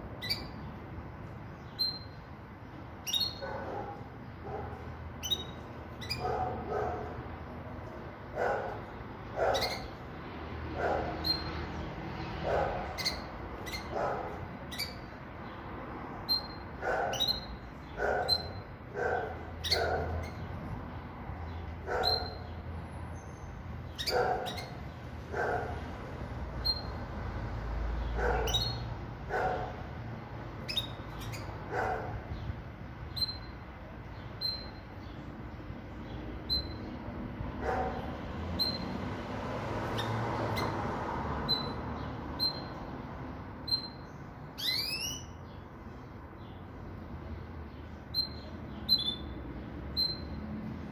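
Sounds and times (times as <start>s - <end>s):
bird chirping: 0.0s - 25.9s, 26.5s - 27.2s, 27.9s - 29.8s, 30.4s - 39.1s, 39.8s - 50.9s
rising bird twitter: 0.2s - 0.6s, 1.6s - 2.2s, 5.2s - 6.3s, 43.6s - 45.4s, 48.1s - 50.4s
dog barking: 3.4s - 4.9s, 6.2s - 7.2s, 8.3s - 9.8s, 10.7s - 11.4s, 12.4s - 13.0s, 13.9s - 14.5s, 16.8s - 17.4s, 18.0s - 20.2s, 21.8s - 22.5s, 24.0s - 24.7s, 25.3s - 25.8s, 28.2s - 29.9s, 31.7s - 32.3s, 37.6s - 38.2s.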